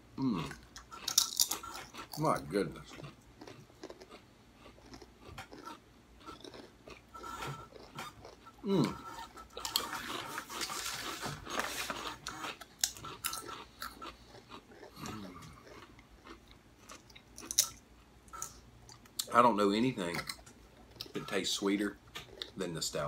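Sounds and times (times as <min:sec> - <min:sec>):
crunching potato chips: 0:00.6 - 0:17.8.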